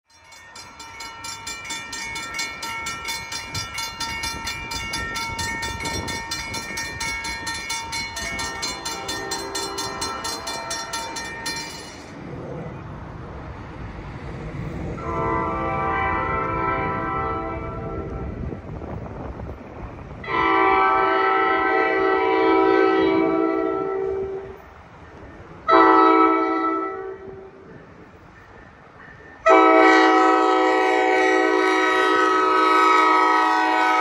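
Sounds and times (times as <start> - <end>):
bell clanging: 0.1 - 12.3
low rumble of train: 0.1 - 34.0
train horn chord: 8.0 - 11.9, 15.0 - 18.4, 20.2 - 24.6, 25.7 - 27.6, 29.4 - 34.0.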